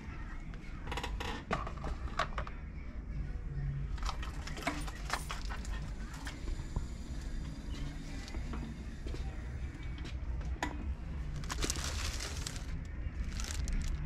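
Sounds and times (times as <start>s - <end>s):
steady low hum: 1.8s - 14.0s
small hard objects clinking: 11.4s - 14.0s.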